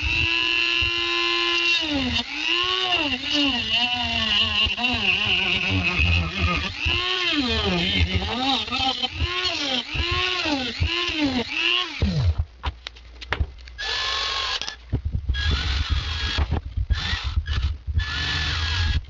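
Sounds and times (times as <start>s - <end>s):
cordless drill drilling: 0.0s - 12.3s, 13.8s - 14.8s, 15.4s - 19.0s
rotary tool cutting plastic: 0.0s - 12.4s, 15.4s - 19.0s.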